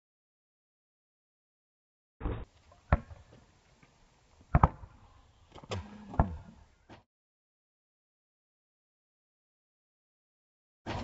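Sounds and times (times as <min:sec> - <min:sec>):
basketball bouncing on asphalt: 0:02.2 - 0:03.4, 0:04.5 - 0:06.6
basketball dunk on hoop: 0:04.5 - 0:04.9, 0:05.7 - 0:06.6.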